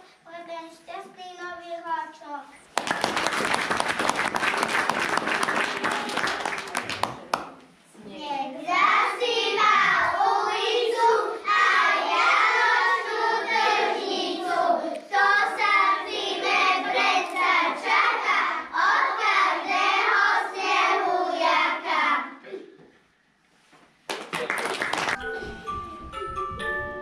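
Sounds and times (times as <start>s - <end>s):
young children singing: 8.7s - 22.5s.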